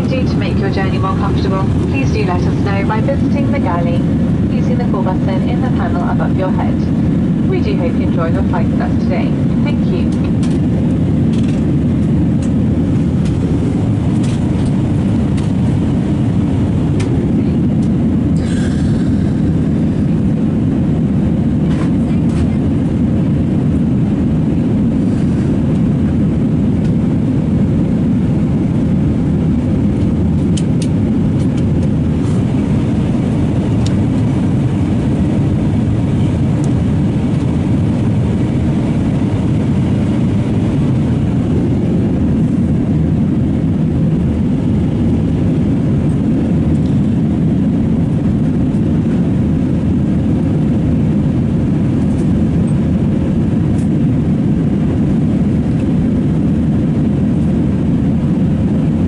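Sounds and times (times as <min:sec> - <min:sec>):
air rushing past fuselage: 0:00.0 - 0:21.9
jet engines rumbling: 0:00.0 - 0:59.0.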